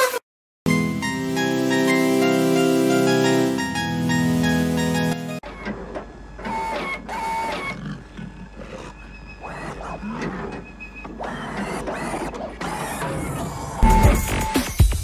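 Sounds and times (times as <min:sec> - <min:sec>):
squealing growling cries: 0:07.6 - 0:13.8
whining servo motors: 0:08.7 - 0:13.8.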